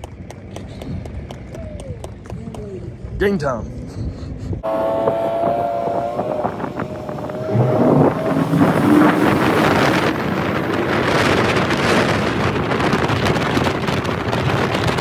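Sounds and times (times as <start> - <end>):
wind buffeting microphone: 0.0 - 15.0
outboard motor running: 4.6 - 15.0
water rushing past hull: 4.7 - 15.0.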